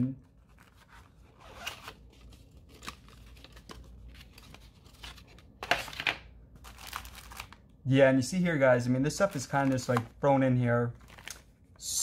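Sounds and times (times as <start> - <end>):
paper and plastic rustling: 0.2 - 7.6, 9.1 - 10.2, 10.9 - 11.5.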